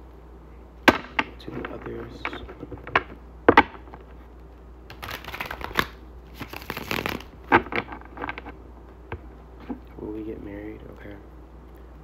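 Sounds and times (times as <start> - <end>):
cards rustling while shuffled: 4.9 - 8.6.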